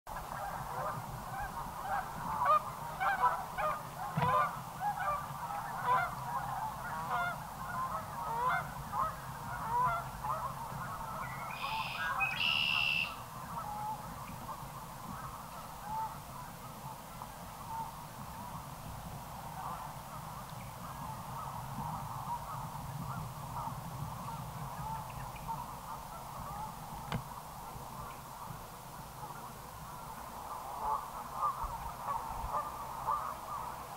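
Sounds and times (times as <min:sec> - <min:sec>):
geese honking: 0:00.2 - 0:17.0, 0:19.6 - 0:27.2, 0:29.2 - 0:33.9.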